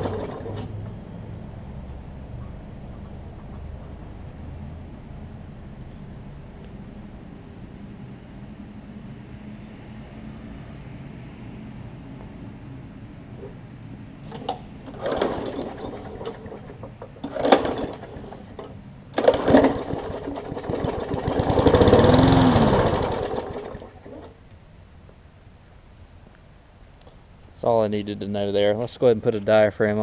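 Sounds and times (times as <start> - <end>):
mower engine revving: 0.0 - 0.8, 14.2 - 24.4
recoil cord pulls: 14.3 - 24.3.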